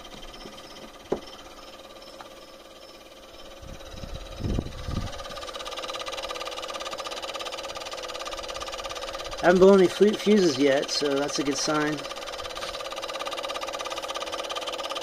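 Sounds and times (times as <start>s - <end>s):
fridge alarm buzzing and clicking: 0.0s - 3.6s
knocks: 0.4s - 1.3s.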